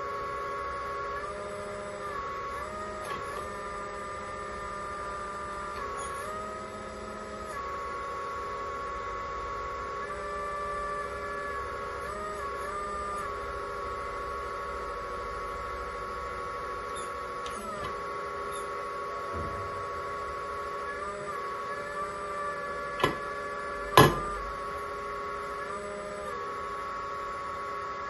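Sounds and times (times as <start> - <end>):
hydraulic pump whining: 0.0 - 28.0
sharp knocks: 24.0 - 24.4.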